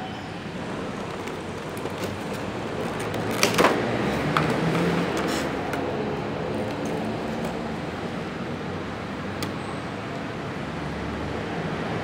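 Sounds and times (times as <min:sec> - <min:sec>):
steady background noise: 0:00.0 - 0:12.0
plastic blister tray crackling: 0:00.7 - 0:05.6.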